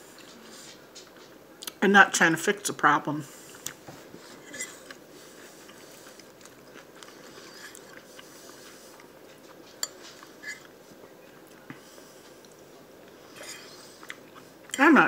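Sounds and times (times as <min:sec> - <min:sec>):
person chewing food: 0:03.4 - 0:14.8.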